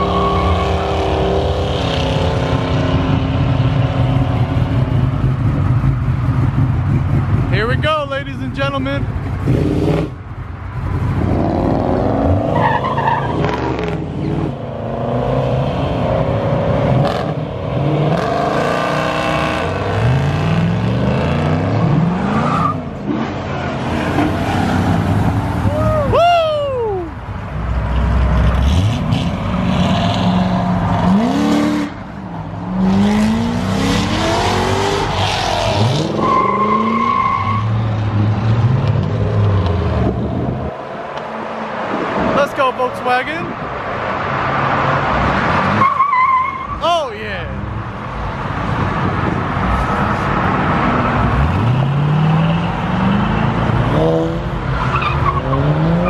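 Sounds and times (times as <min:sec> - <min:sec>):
car engines revving: 0:00.0 - 0:56.0.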